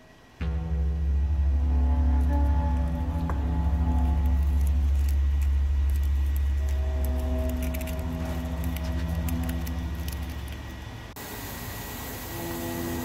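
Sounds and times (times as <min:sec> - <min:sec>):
music with heavy bass: 0:00.4 - 0:10.7.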